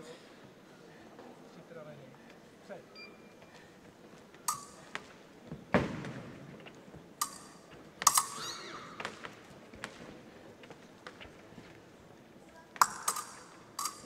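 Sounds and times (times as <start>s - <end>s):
sword blades clashing: 8.1s - 9.0s.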